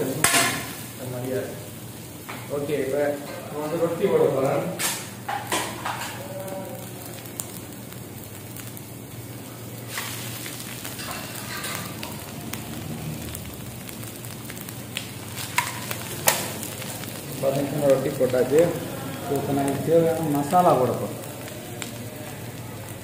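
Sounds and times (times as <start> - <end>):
vegetables sizzling in oil: 0.0 - 23.0
sharp knocks on griddle: 0.2 - 0.7.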